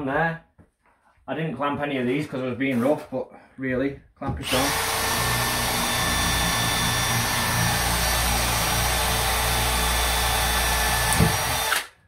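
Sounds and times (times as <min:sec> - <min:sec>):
power drill boring wood: 0:04.4 - 0:12.0.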